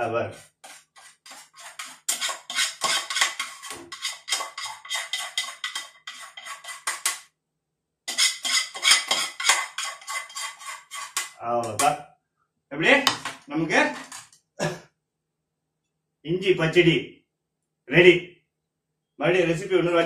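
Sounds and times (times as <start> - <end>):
metal spoon scraping a pan: 0.3 - 7.2, 8.1 - 11.4.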